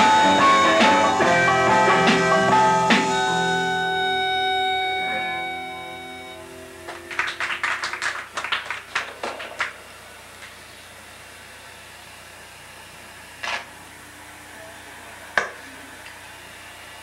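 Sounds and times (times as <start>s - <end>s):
rock band chord ringing: 0.0s - 7.9s
room hum: 0.0s - 17.0s
people clapping: 6.8s - 10.6s.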